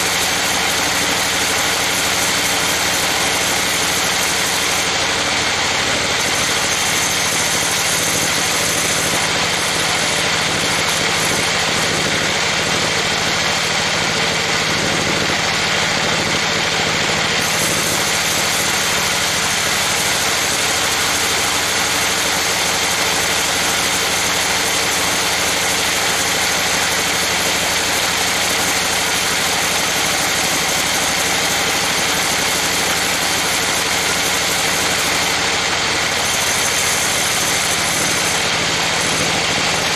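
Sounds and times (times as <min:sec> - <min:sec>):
band saw cutting timber: 0:00.0 - 0:39.9.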